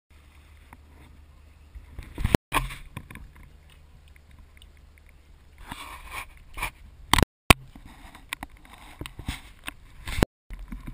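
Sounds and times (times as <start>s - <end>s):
water dripping: 2.9s - 5.6s.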